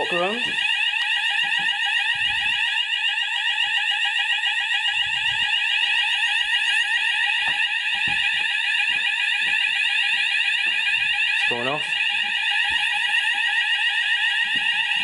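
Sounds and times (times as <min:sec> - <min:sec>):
fire alarm sweeping tone: 0:00.0 - 0:15.0.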